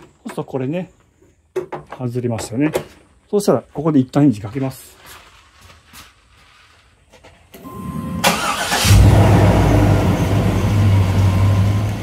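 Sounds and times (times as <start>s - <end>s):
engine starter cranking: 8.2s - 10.1s
car engine idling: 8.2s - 12.0s.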